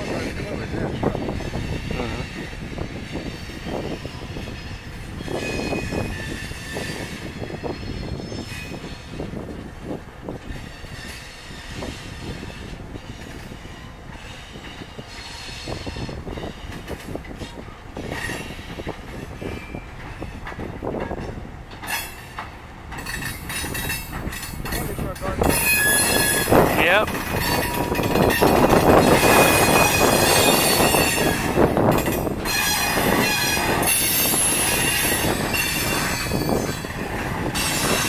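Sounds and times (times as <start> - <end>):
high wheel squeal: 1.3 - 9.3, 25.4 - 38.0
train wheels clacking over joints: 10.3 - 38.0.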